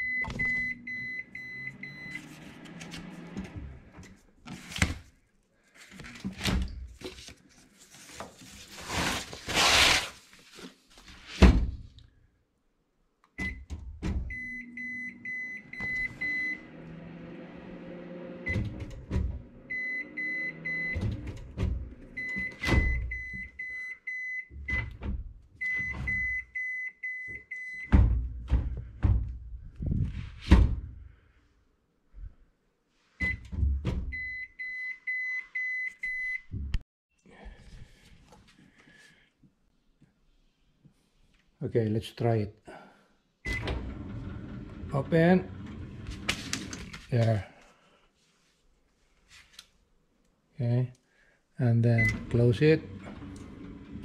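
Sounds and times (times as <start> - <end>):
microwave drawer motor running: 14.3 - 22.3, 52.0 - 54.0.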